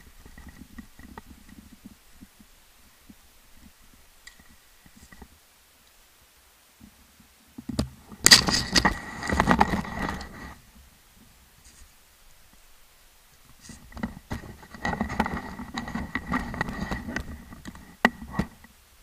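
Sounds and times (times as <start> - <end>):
camera rubbing and scraping: 8.2 - 10.6, 13.5 - 18.7.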